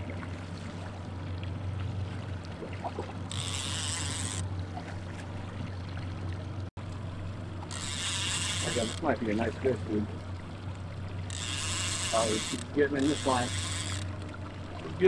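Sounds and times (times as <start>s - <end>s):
boat motor running: 0.0s - 15.0s
water noise: 0.0s - 15.0s
fishing reel buzzing: 3.2s - 4.5s, 7.5s - 9.5s, 11.1s - 14.4s.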